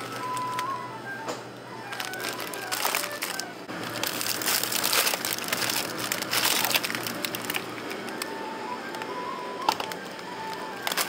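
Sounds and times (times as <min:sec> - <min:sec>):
plastic packaging crinkling: 0:00.0 - 0:00.8, 0:01.8 - 0:08.4, 0:09.7 - 0:11.0.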